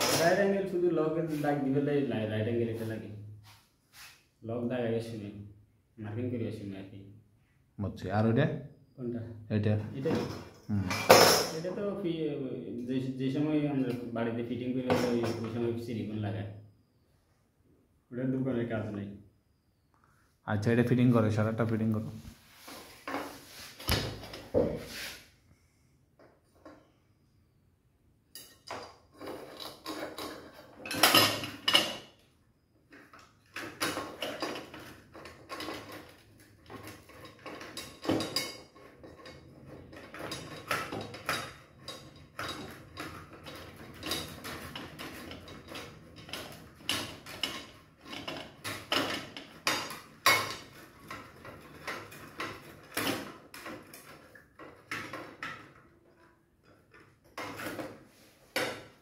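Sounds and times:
metal tools clinking on workbench: 0.0s - 0.5s, 10.0s - 11.7s, 28.3s - 32.1s, 33.5s - 55.8s.

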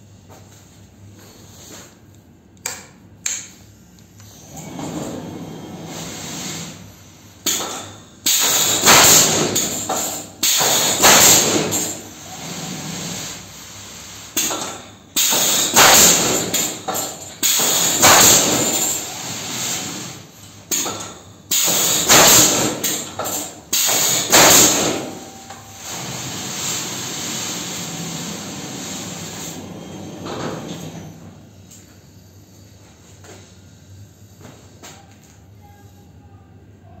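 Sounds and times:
machine running noise: 3.4s - 35.4s
nail gun bangs: 7.5s - 11.9s, 14.4s - 16.8s, 17.4s - 18.8s, 20.7s - 25.1s.

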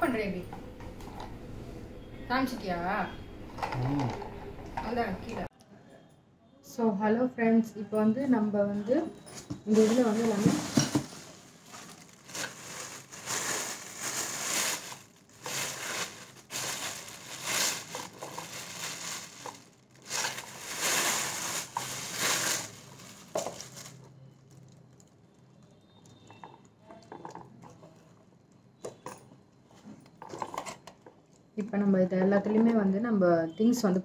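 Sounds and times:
faint handling sounds: 9.3s - 28.2s
plastic bag crinkling: 9.7s - 25.7s.

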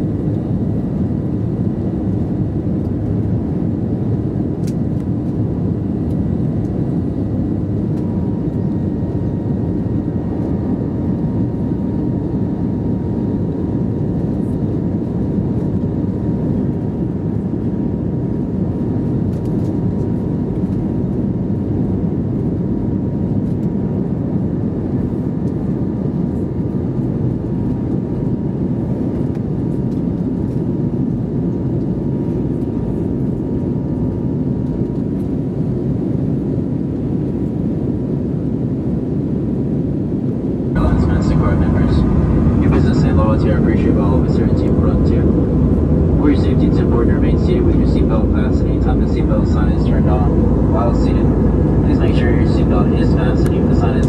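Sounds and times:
aircraft cabin low roar: 0.0s - 54.0s
faint steady whine: 38.5s - 54.0s.

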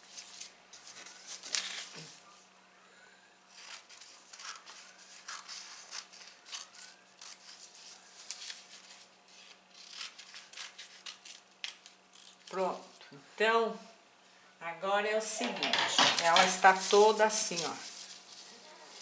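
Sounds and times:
paper rustling: 0.0s - 2.3s, 3.5s - 12.6s, 15.5s - 19.0s
scissors snipping paper: 3.5s - 12.6s.

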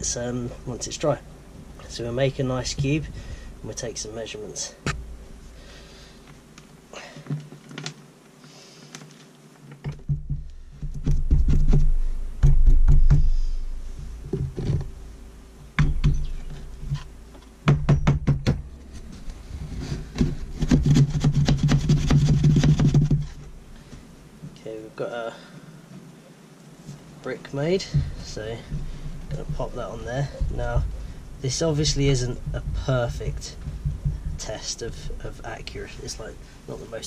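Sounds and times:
knocks and thumps on wood: 9.8s - 13.4s, 14.2s - 14.9s, 15.8s - 18.7s, 19.8s - 23.5s, 27.8s - 35.8s
rapid tapping: 20.1s - 23.5s, 27.8s - 36.6s.

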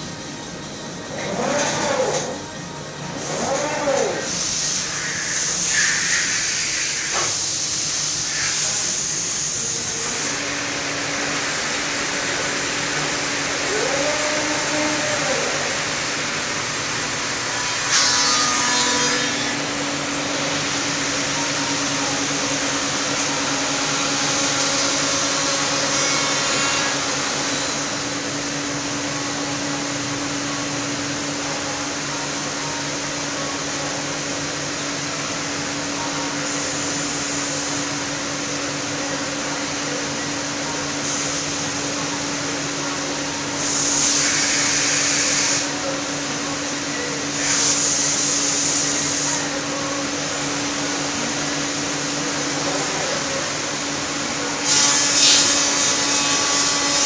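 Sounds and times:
woodworking machine drone: 0.0s - 57.0s
machine hissing: 4.2s - 10.4s, 43.6s - 45.7s.

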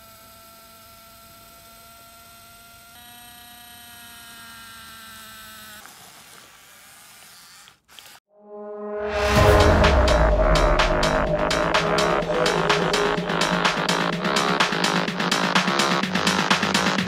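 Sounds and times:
electric motors whining: 0.0s - 8.2s.

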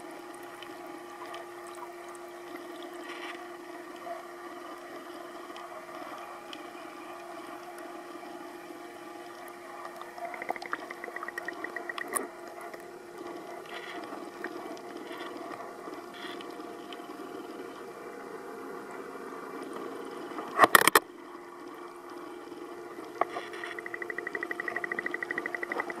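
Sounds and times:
water flowing: 0.0s - 17.8s
aquarium pumps humming: 0.0s - 26.0s
fast buzzing rattle: 23.6s - 26.0s.

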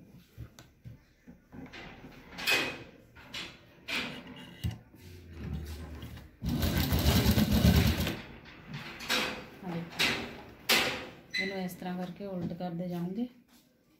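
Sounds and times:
sewing machine stitching: 6.4s - 8.2s.

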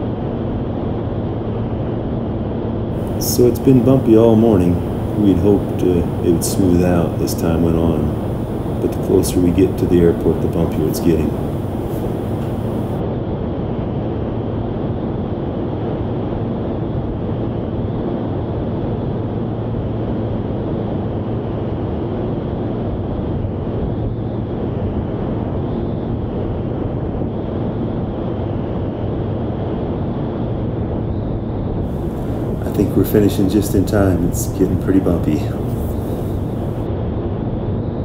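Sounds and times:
propeller aircraft engine droning: 3.0s - 13.0s, 31.9s - 36.8s
rushing airflow: 3.0s - 13.0s, 31.9s - 36.9s.

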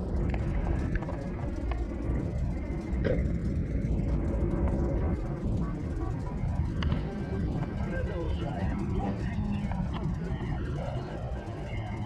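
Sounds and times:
faint ticks: 0.0s - 7.7s
engine and tyre rumble: 0.0s - 12.0s.

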